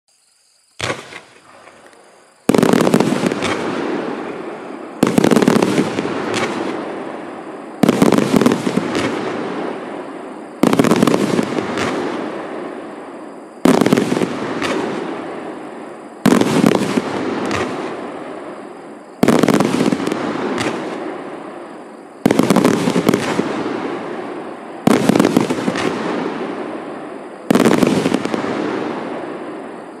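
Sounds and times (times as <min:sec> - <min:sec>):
small firework pops: 0:00.8 - 0:03.7, 0:05.0 - 0:06.8, 0:07.8 - 0:09.2, 0:10.6 - 0:12.1, 0:13.6 - 0:15.0, 0:16.3 - 0:17.9, 0:19.2 - 0:21.1, 0:24.9 - 0:26.1
fireworks launching and bursting: 0:00.8 - 0:30.0.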